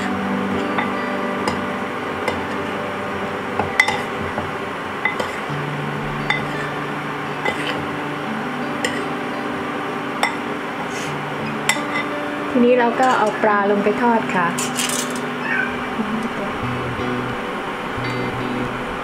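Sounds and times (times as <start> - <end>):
soft background music: 0.0 - 19.0
metal spoon clinking on bowl: 6.3 - 6.6, 11.6 - 12.1.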